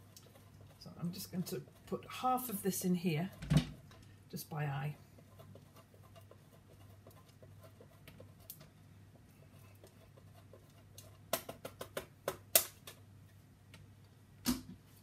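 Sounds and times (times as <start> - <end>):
cheese grater rasping: 0.0 - 3.3
sharp clicks of grater: 11.3 - 13.0.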